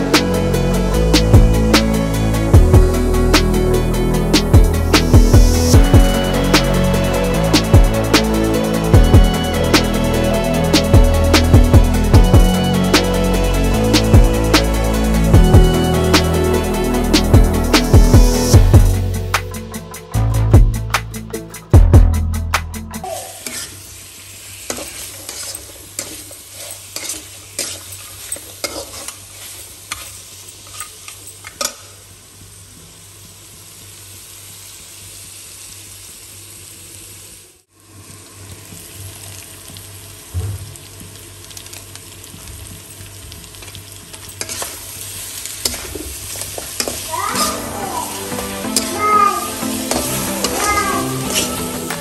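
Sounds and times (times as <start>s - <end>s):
meat sizzling in a pan: 23.0s - 52.0s
spatula scraping and knocking pan: 23.4s - 23.8s, 24.7s - 31.0s, 45.6s - 47.8s, 49.9s - 52.0s.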